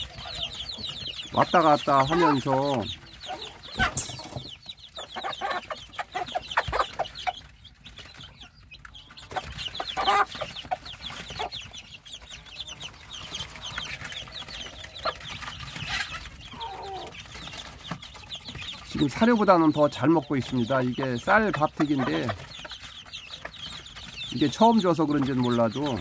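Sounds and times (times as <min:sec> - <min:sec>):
chicks peeping: 0:00.0 - 0:26.0
hen clucking: 0:00.0 - 0:26.0.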